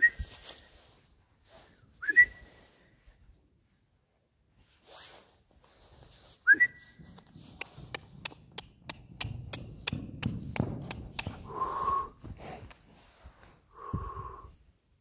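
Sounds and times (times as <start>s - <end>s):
person whistling: 2.0s - 2.6s, 6.4s - 7.0s
horse trotting on sand: 7.0s - 13.1s.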